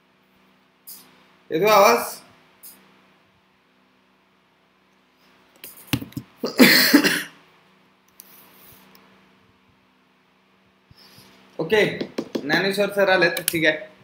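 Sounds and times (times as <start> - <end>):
faint steady hum: 0.0 - 14.0
man coughing: 6.4 - 7.4.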